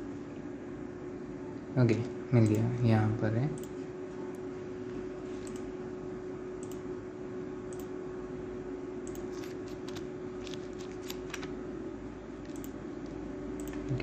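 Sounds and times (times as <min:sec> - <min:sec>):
steady hum and hiss: 0:00.0 - 0:14.0
computer mouse clicks: 0:05.4 - 0:05.7, 0:06.6 - 0:06.8, 0:09.0 - 0:11.5, 0:12.4 - 0:14.0.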